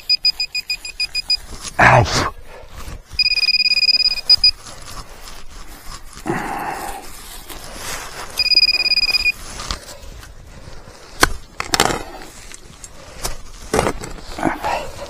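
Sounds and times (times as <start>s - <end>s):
metal detector tone: 0.0s - 1.5s, 3.1s - 4.6s, 8.4s - 9.4s
rustling: 0.0s - 15.0s.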